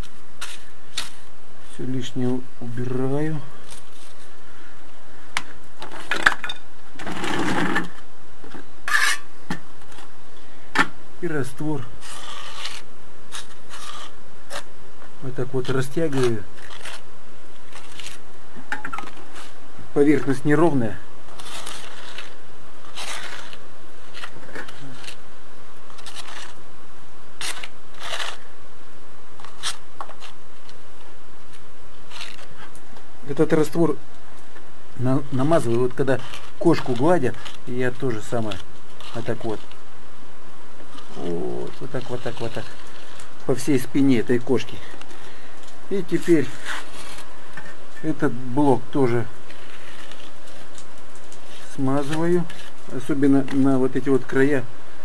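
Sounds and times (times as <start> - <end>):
trowel scraping in a plastic bucket: 12.0 - 14.6.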